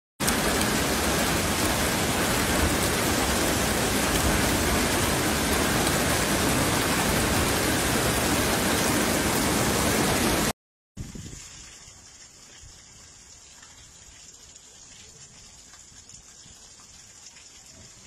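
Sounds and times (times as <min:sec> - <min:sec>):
hail and rain on a car roof: 0:00.2 - 0:10.5.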